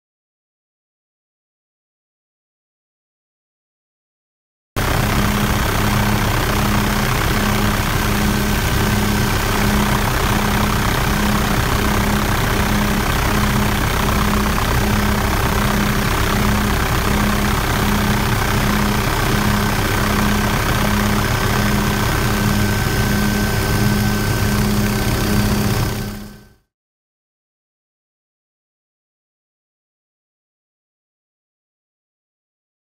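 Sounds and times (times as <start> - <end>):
low pulsing tone: 4.8 - 26.6
helicopter engine and rotor drone: 4.8 - 26.7.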